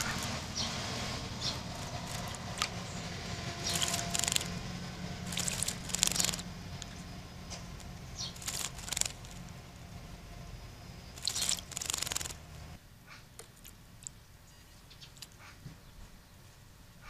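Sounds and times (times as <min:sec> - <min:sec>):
bird wings splashing water: 0:00.0 - 0:00.8, 0:01.4 - 0:02.8, 0:03.6 - 0:04.6, 0:05.2 - 0:07.0, 0:07.6 - 0:09.6, 0:11.1 - 0:12.8
low hum: 0:00.0 - 0:15.3.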